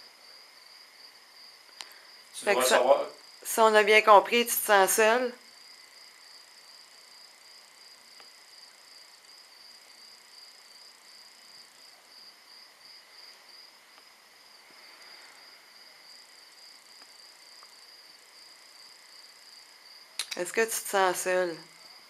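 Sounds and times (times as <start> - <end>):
night insects trilling: 0.0 - 22.0
tiny clicks: 20.2 - 20.5.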